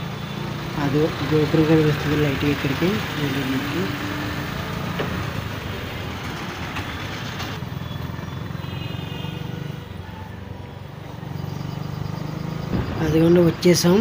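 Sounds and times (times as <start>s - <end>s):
road and traffic noise: 0.0s - 14.0s
vehicle engine running: 0.0s - 14.0s.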